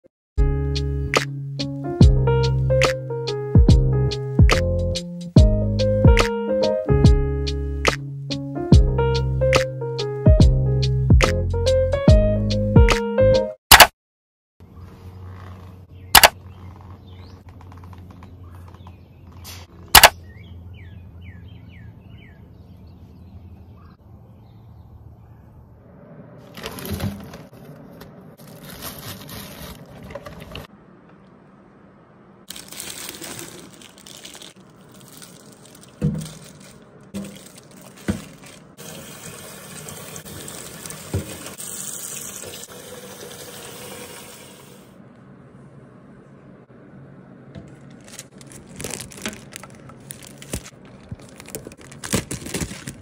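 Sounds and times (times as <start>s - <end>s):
bird chirping: 18.2s - 25.6s
tap water running into sink: 37.2s - 44.8s.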